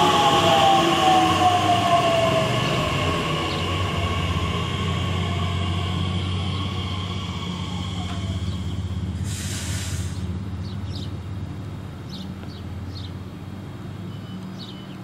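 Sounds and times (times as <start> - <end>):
electric train braking hum: 0.0 - 10.8
birds chirping: 1.1 - 9.2, 10.2 - 11.2, 12.0 - 13.2, 14.0 - 15.0
air hiss: 2.6 - 10.4.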